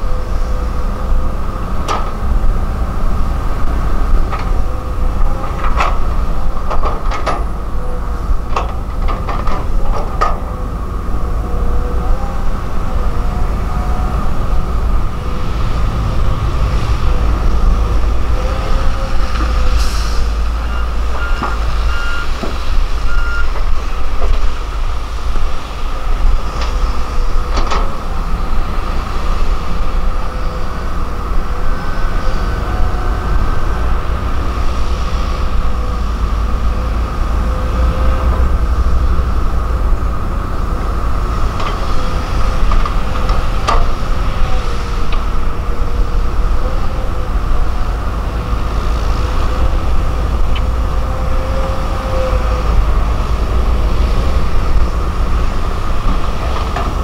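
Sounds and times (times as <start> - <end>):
excavator diesel engine rumbling: 0.0 - 57.0
excavator bucket clanking: 4.0 - 10.7.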